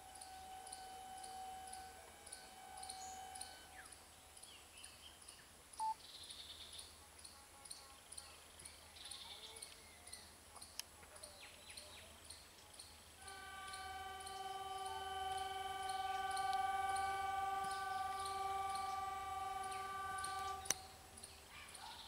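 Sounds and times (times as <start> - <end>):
distant steady tone: 0.0 - 4.8, 13.2 - 21.8.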